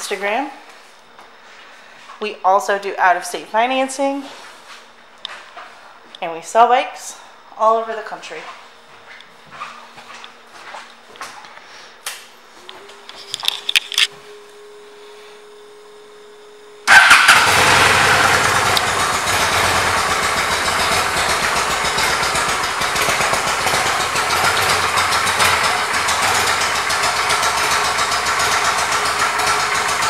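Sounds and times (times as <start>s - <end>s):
faint steady hum: 0.0s - 17.0s
motorcycle engine starting and idling: 16.8s - 30.0s.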